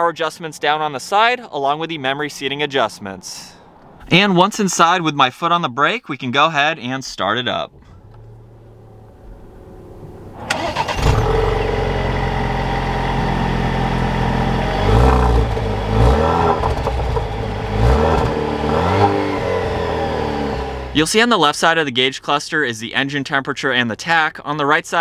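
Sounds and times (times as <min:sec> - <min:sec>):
car engine starting and idling: 0:07.4 - 0:21.1
engine revving: 0:07.8 - 0:21.0.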